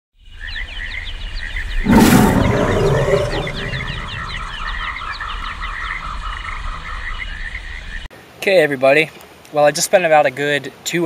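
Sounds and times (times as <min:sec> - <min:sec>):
frogs chirping: 0:00.4 - 0:08.1
loud roar: 0:01.8 - 0:04.5.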